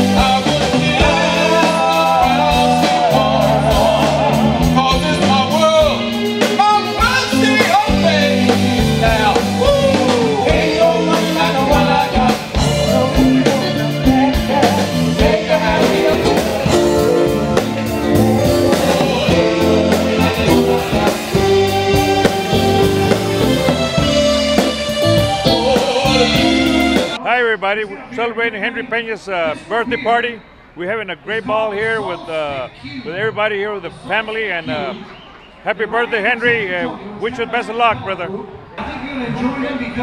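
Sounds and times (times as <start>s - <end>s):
male singers singing: 0.0s - 23.8s, 25.1s - 27.2s
drum kit dance beat: 0.0s - 27.2s
guitar: 0.0s - 27.2s
keyboard: 0.0s - 33.3s.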